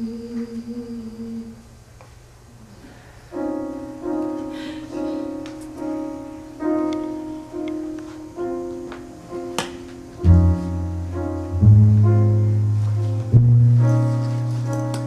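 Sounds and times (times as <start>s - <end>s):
piano chords: 3.0s - 15.0s
held low piano note: 4.5s - 15.0s.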